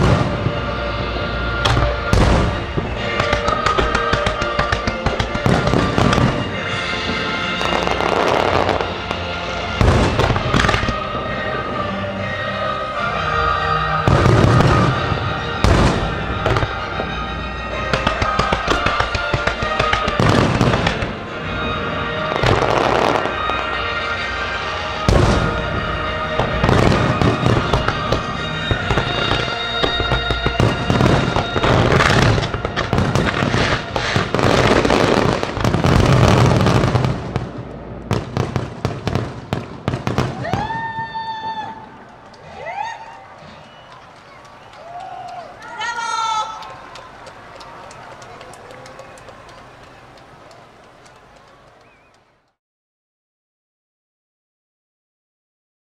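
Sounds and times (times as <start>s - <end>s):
fireworks booming and crackling: 0.0s - 12.3s, 13.9s - 45.3s
music: 0.0s - 52.2s.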